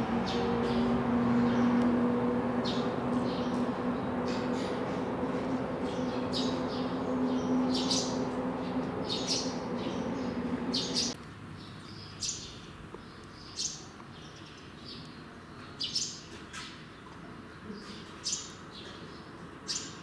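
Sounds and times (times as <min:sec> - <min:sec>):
steady low hum: 0:00.0 - 0:11.2
small birds chirping: 0:00.0 - 0:20.0.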